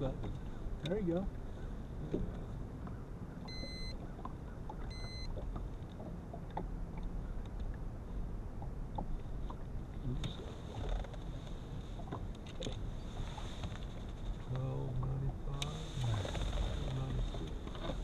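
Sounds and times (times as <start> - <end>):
wind and water rumble: 0.0 - 18.0
faint ticks: 0.2 - 1.0
short electronic beeps: 3.5 - 4.0, 4.9 - 5.3.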